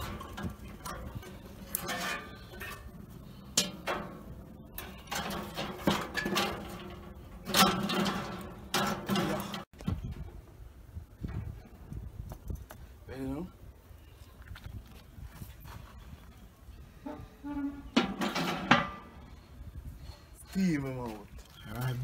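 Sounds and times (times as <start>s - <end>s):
metal grill clinks and scrapes: 0.0s - 9.7s, 17.4s - 19.2s.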